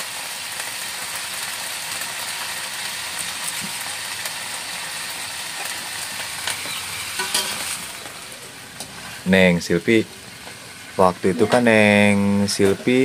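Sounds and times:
greens sizzling in a wok: 0.0s - 13.0s
wood fire crackles: 0.0s - 13.0s
spatula clinking on wok: 7.2s - 7.6s.

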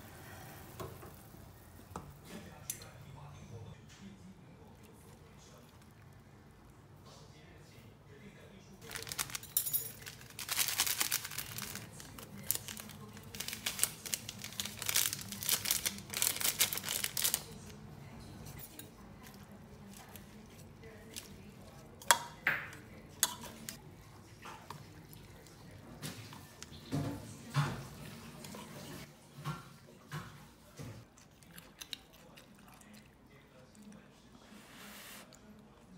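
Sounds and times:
packaging crinkling and tearing: 8.8s - 17.7s.

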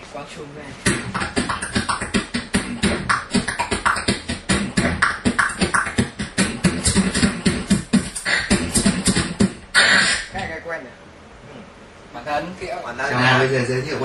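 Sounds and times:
beatboxing into microphone: 0.8s - 10.5s.

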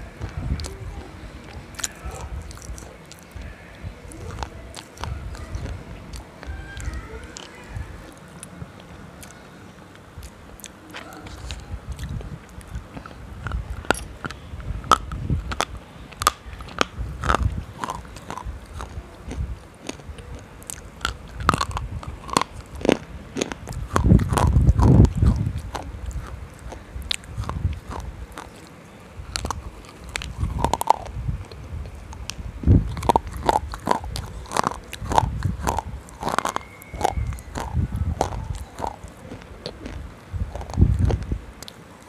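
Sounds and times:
biting and crunching: 0.0s - 42.0s.

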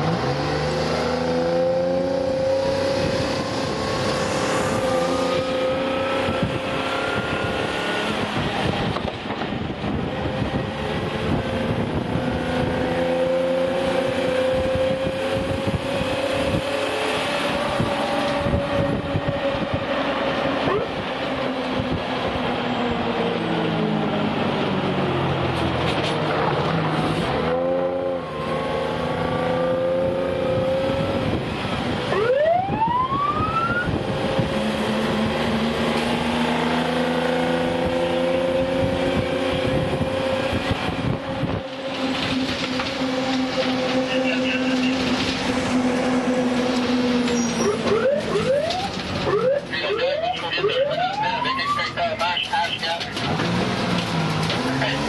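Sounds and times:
fire engine droning: 0.0s - 55.0s
siren whoops: 20.6s - 20.9s, 32.1s - 34.0s, 47.2s - 52.0s.

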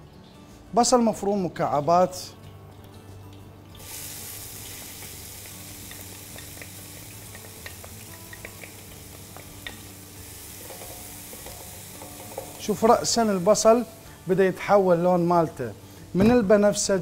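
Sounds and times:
onion sizzling in oil: 3.8s - 16.9s
oil pops and crackles: 4.6s - 9.8s.

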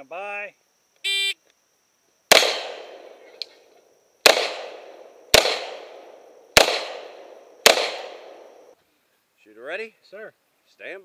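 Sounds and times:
revolver shots with echo: 2.3s - 3.0s, 4.3s - 8.5s.

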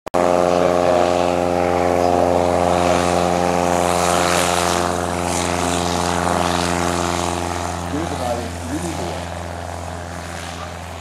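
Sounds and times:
propeller plane engine: 0.1s - 11.0s.

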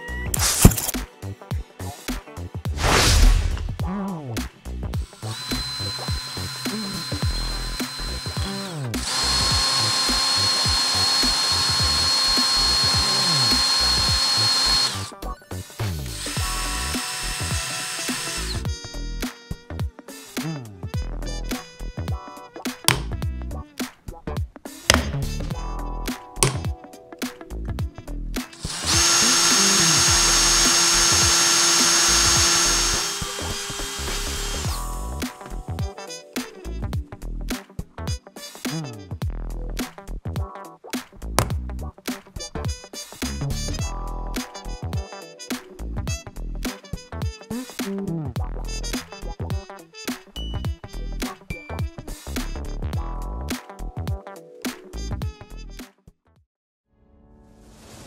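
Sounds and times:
background music: 0.0s - 56.0s
cordless drill whining into metal: 0.3s - 0.9s, 5.0s - 15.2s, 16.0s - 18.7s, 28.6s - 34.9s.

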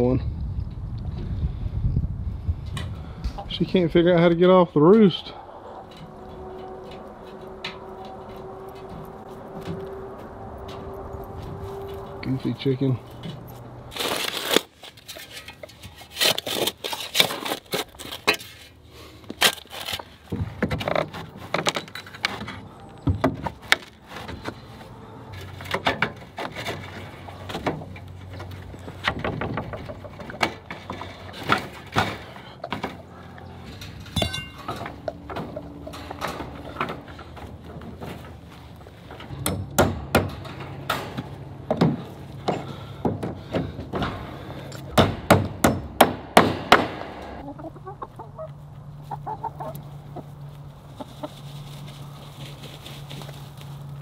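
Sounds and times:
wire fencing clinking and rattling: 33.2s - 42.7s.

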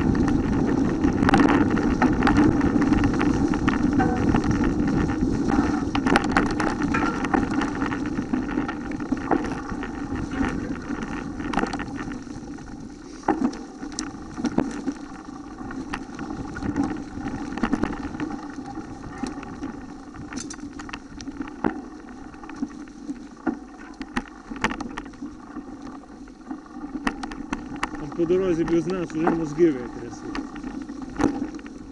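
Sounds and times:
bike knocks and rattles: 0.0s - 15.1s
bike tyres rumbling on dirt: 0.0s - 31.9s.

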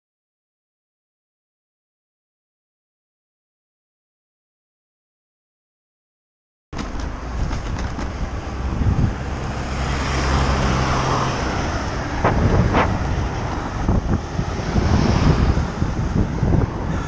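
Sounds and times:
van engine hum: 6.8s - 17.0s
wind rushing over microphone: 6.8s - 17.0s.

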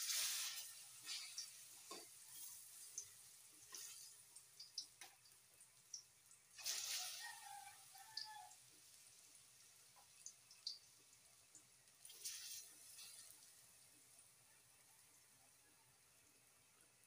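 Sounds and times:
oil sizzling with pops: 0.0s - 17.0s.

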